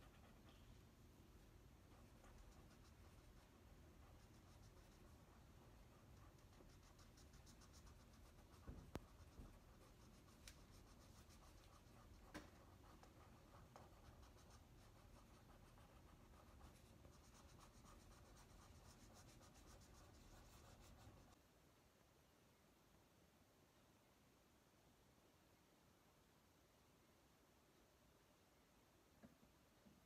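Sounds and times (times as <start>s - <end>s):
markers rubbing on paper: 1.9s - 21.4s.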